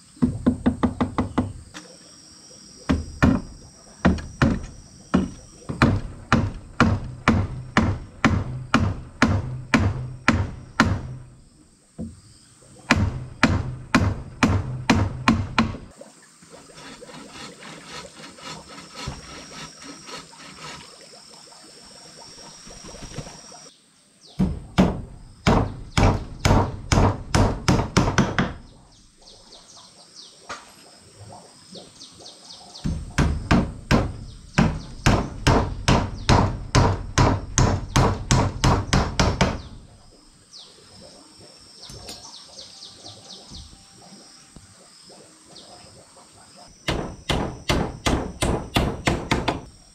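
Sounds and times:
hammer driving nails into wood: 4.1 - 11.2, 12.9 - 15.9, 24.4 - 28.6, 32.9 - 39.8, 46.9 - 49.7
faint high chirping: 39.7 - 47.3.

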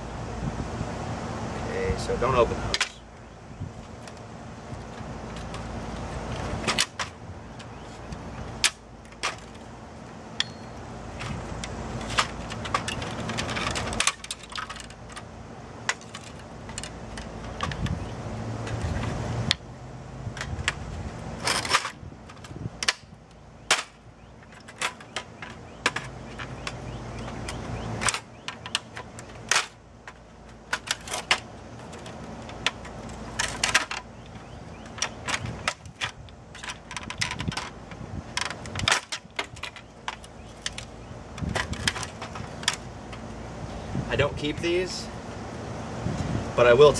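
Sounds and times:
plastic and metal parts snapping: 6.4 - 7.8, 11.2 - 18.0, 21.4 - 43.3
sharp plastic cracks: 21.4 - 43.2.

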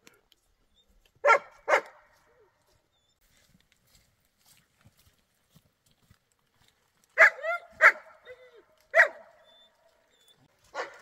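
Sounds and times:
dog barking: 1.2 - 2.1, 7.2 - 9.5, 10.7 - 11.0
dog yelping: 7.2 - 11.0.

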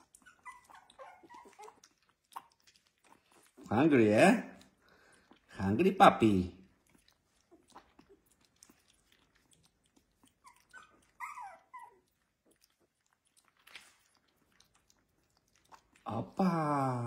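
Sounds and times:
puppy squeaking: 0.0 - 2.7, 10.2 - 12.2
puppy wet smacking and chewing: 0.0 - 17.0.

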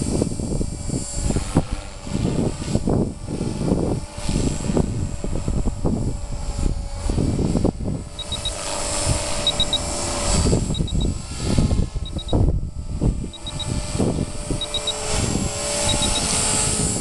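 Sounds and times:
rc helicopter rotor whine: 0.0 - 17.0
wind buffeting microphone: 0.0 - 17.0
triple electronic beep: 8.2 - 8.6, 9.4 - 9.8, 10.7 - 11.1, 12.1 - 12.4, 14.6 - 15.0, 15.9 - 16.3.

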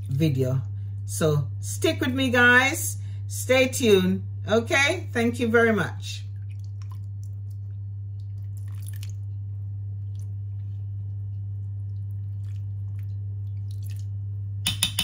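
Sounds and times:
steady low hum: 0.0 - 15.0
wet squelches and drips: 6.3 - 14.3.

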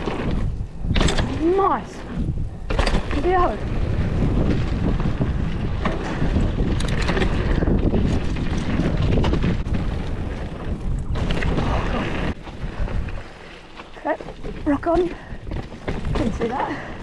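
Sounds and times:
bike clicks and rattles: 0.0 - 17.0
tyres rolling over dirt: 0.0 - 17.0
wind buffeting microphone: 0.0 - 17.0.

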